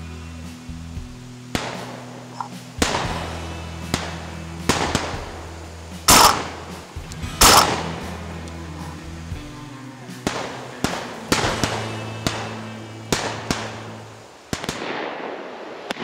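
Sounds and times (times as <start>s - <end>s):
background music: 0.0s - 15.1s
shotgun shots echoing: 1.5s - 5.4s, 6.1s - 6.8s, 7.4s - 8.1s, 10.2s - 16.0s.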